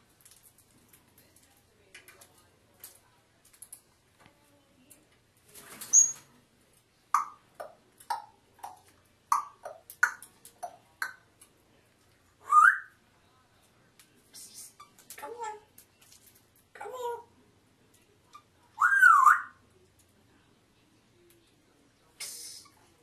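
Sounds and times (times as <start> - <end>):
parrot whistling: 12.4 - 12.9, 18.8 - 19.6
parrot squawk: 18.8 - 19.6.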